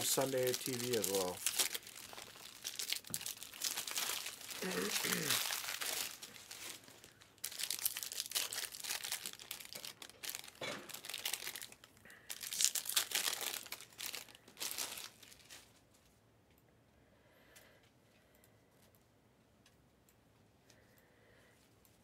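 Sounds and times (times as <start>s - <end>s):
card pack wrappers crinkling and tearing: 0.0s - 15.8s.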